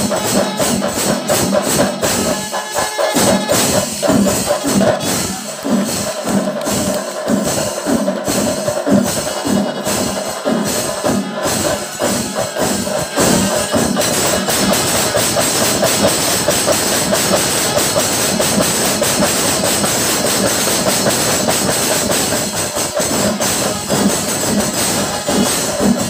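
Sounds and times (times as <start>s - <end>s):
horns sounding: 0.0s - 6.4s, 10.7s - 16.4s
drums beaten fast: 0.0s - 26.0s
hand cymbals clashing: 0.0s - 26.0s.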